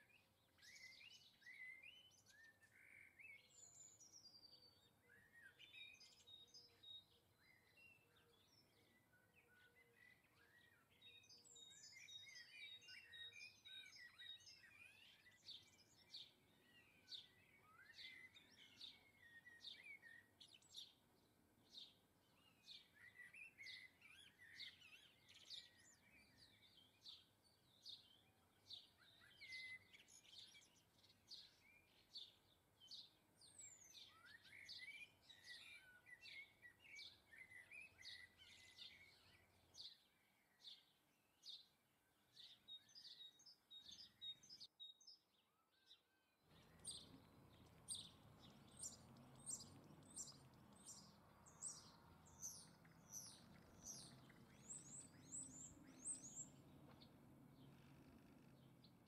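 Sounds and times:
songbirds chirping: 0:00.0 - 0:59.0
low background noise: 0:46.5 - 0:59.0.

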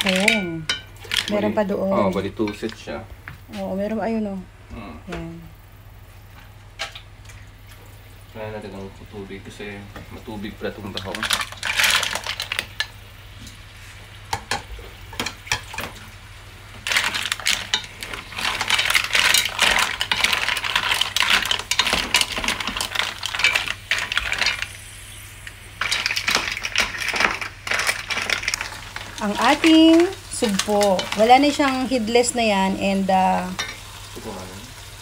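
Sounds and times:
mussel shells clattering in a pot: 0:00.0 - 0:02.9, 0:10.6 - 0:13.0, 0:14.3 - 0:33.9.

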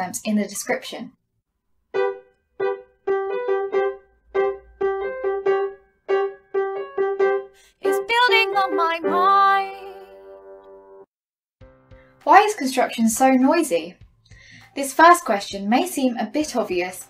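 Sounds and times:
keyboard music jingle: 0:02.0 - 0:12.5.

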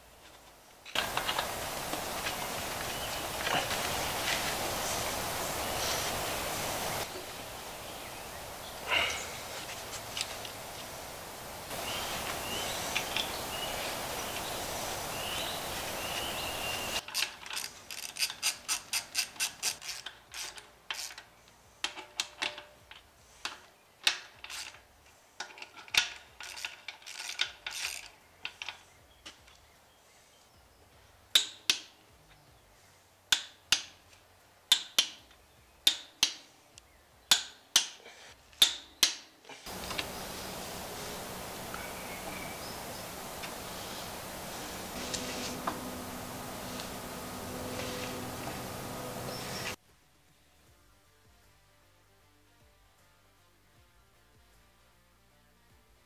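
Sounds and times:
steady hiss: 0:00.0 - 0:17.0, 0:39.5 - 0:50.2
ratchet wrench clicking: 0:17.0 - 0:21.2, 0:26.4 - 0:28.1.

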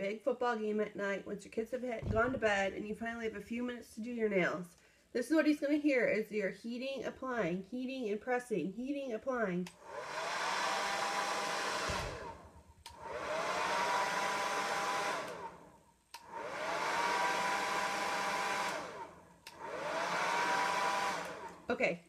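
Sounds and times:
hair dryer switch clicking: 0:09.6 - 0:09.9, 0:11.4 - 0:13.6, 0:14.2 - 0:15.5, 0:16.1 - 0:16.4, 0:18.4 - 0:21.6
hair dryer motor whine: 0:09.7 - 0:21.7.

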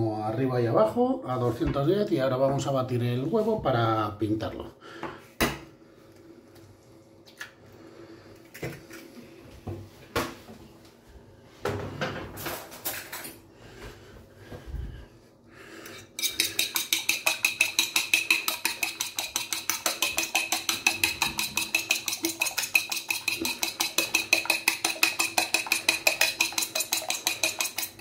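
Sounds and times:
fork clicking against plate: 0:16.2 - 0:28.0.

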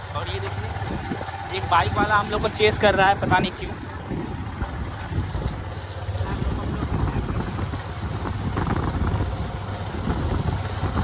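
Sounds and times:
motorbike engine running: 0:00.0 - 0:11.0
wind rushing over microphone: 0:00.6 - 0:11.0.

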